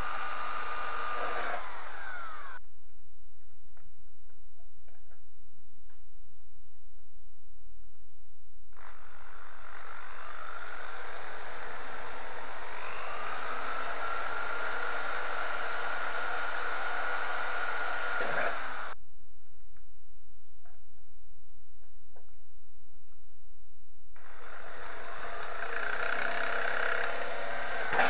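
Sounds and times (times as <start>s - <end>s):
electric drill whine: 0.0s - 2.6s, 8.8s - 19.0s, 24.2s - 28.0s.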